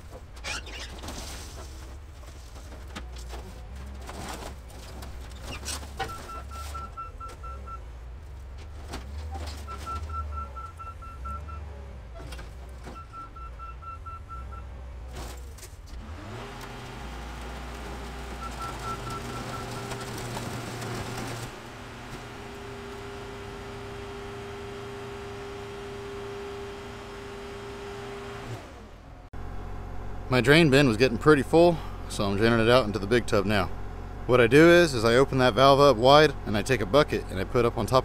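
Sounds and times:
car being crushed: 0.0s - 7.8s, 8.4s - 11.4s, 15.0s - 16.1s, 18.0s - 22.6s
diesel engine running: 0.0s - 38.0s.

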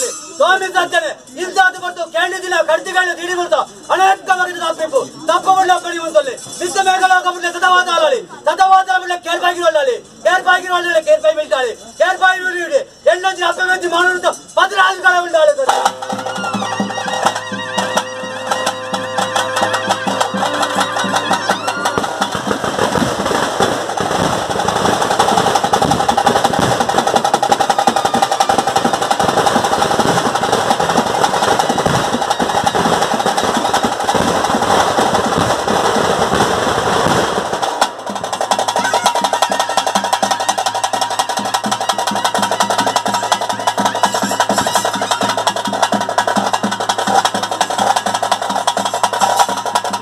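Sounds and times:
fast dense drumming: 15.6s - 50.0s
wind instrument long notes: 15.8s - 23.1s, 25.1s - 35.2s, 38.7s - 45.2s.

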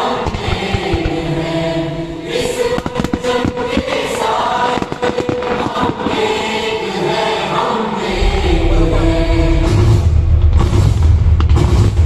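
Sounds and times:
fireworks bursting and crackling: 0.0s - 1.4s, 2.3s - 6.9s
choral music: 0.0s - 12.0s.

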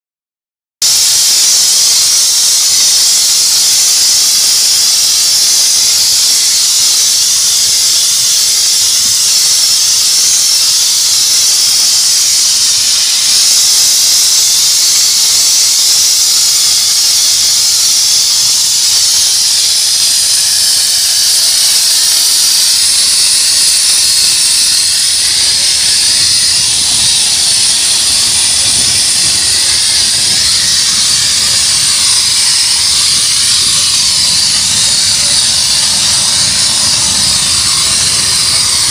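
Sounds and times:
steam spray hissing: 0.8s - 38.9s.

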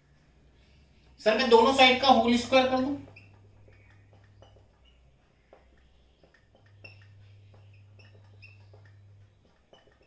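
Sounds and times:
marker writing on whiteboard: 0.2s - 10.0s.

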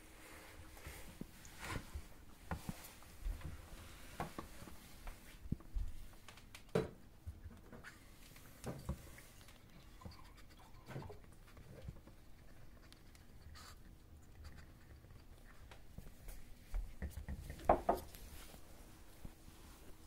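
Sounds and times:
puppy licking and gnawing: 9.1s - 17.6s.

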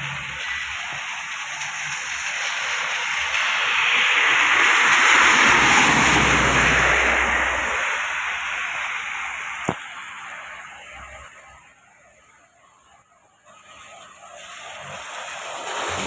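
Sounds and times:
rain falling: 0.0s - 11.6s
tyres hissing through water: 0.0s - 12.4s, 13.5s - 16.0s.

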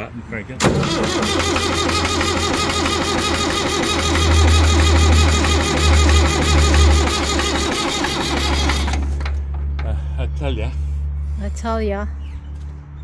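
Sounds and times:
diesel engine cranking on starter: 0.6s - 9.7s.

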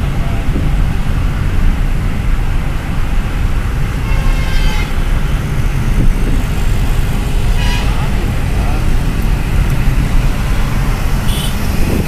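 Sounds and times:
vehicle interior road noise: 0.0s - 12.0s
vehicle horn: 4.0s - 5.0s, 7.5s - 8.1s, 11.3s - 11.7s.

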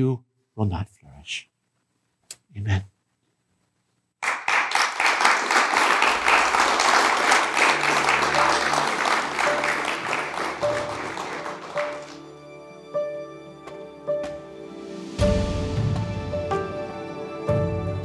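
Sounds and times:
audience applauding: 4.2s - 12.4s
soft music: 6.1s - 18.0s.

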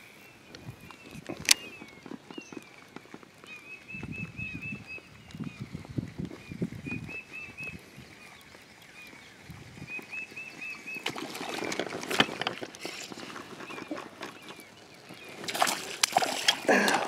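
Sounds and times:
songbird chirping: 0.0s - 17.0s
scratchy clicking noise: 0.5s - 4.3s
water lapping and sloshing: 0.7s - 17.0s.

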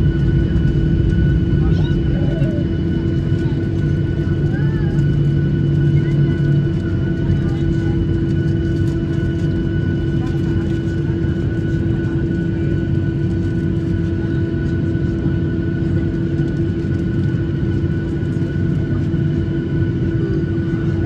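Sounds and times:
jet engine whine and rumble: 0.0s - 21.0s.

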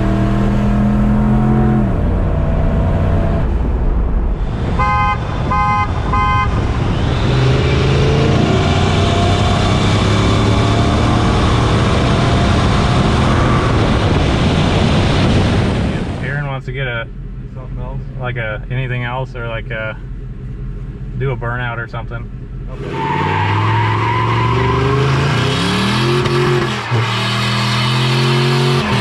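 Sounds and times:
truck engines accelerating hard: 0.0s - 18.0s, 22.5s - 29.0s
car horn toots: 4.7s - 6.7s.

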